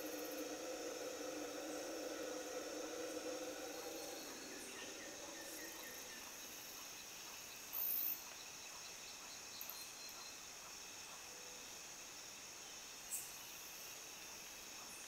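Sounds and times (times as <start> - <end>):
distant howler monkeys roaring: 0.0 - 6.6
very high-pitched whine: 0.0 - 7.2
insect chorus buzzing and trilling: 0.0 - 15.0.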